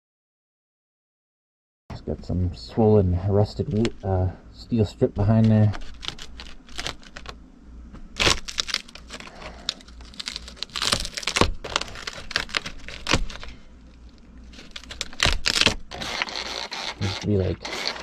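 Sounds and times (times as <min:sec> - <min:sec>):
brittle paneling crackling and rustling: 0:05.2 - 0:07.3.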